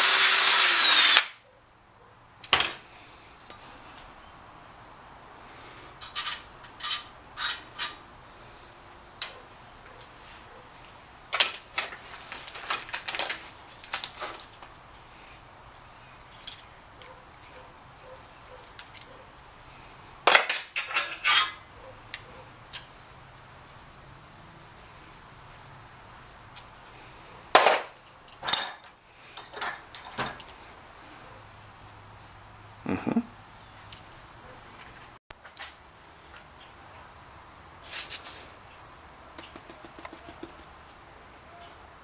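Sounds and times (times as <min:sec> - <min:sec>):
metal tools clinking on workbench: 0:06.0 - 0:08.0, 0:20.2 - 0:21.6, 0:27.6 - 0:30.7.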